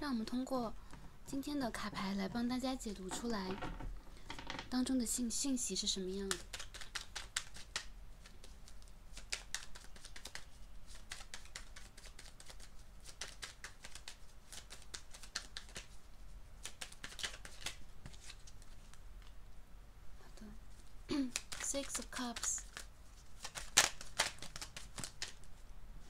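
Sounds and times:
cards being shuffled: 0:06.1 - 0:19.4, 0:20.7 - 0:25.6.

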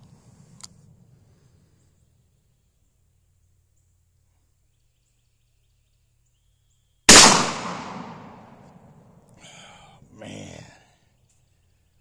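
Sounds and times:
revolver shot: 0:07.1 - 0:08.5.

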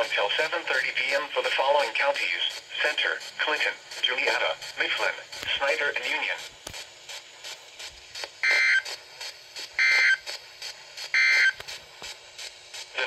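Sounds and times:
digital data tone bursts: 0:08.4 - 0:08.8, 0:09.8 - 0:10.2, 0:11.2 - 0:11.6.

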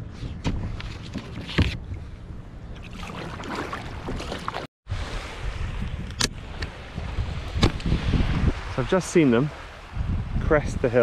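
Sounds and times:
paddle splashing water: 0:02.7 - 0:04.7
wind buffeting microphone: 0:04.9 - 0:11.0.

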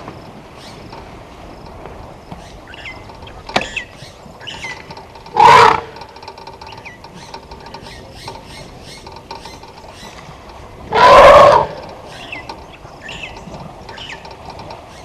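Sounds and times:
elephant trumpeting: 0:05.3 - 0:06.0, 0:10.9 - 0:11.9
faint bird chirps: 0:12.0 - 0:14.3.

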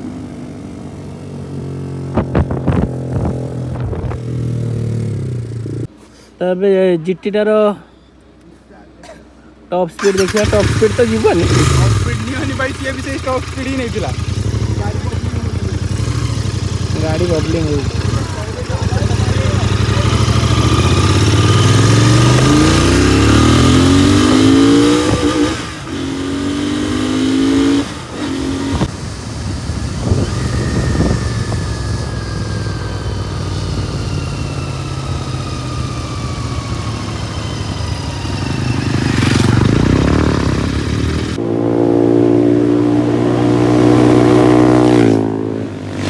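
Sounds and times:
motorcycle engine revving: 0:00.0 - 0:05.9, 0:10.0 - 0:46.0
rushing wind: 0:01.9 - 0:05.8, 0:14.1 - 0:46.0.

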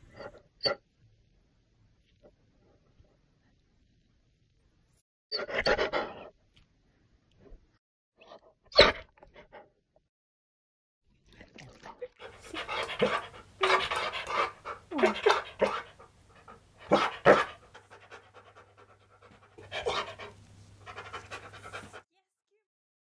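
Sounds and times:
dog grumbling and huffing: 0:12.2 - 0:22.0
dog panting: 0:12.2 - 0:22.1.

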